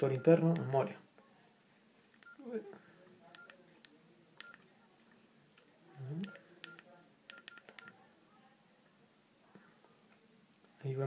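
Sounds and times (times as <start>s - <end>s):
phone keypad beeps: 2.2s - 2.4s, 3.3s - 3.6s, 4.4s - 4.6s, 6.2s - 8.0s.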